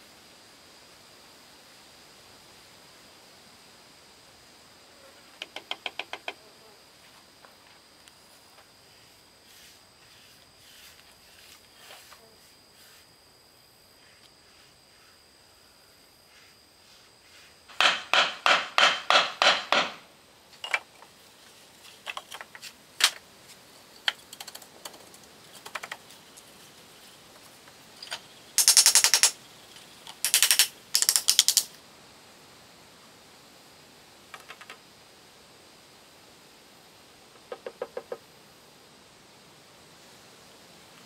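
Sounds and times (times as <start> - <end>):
nail gun firing: 17.7 - 20.1, 28.6 - 29.4, 30.2 - 31.7.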